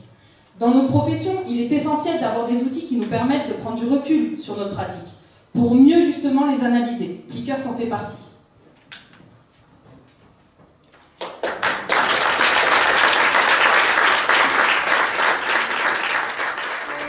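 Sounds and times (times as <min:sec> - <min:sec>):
audience applause: 0:11.2 - 0:17.0.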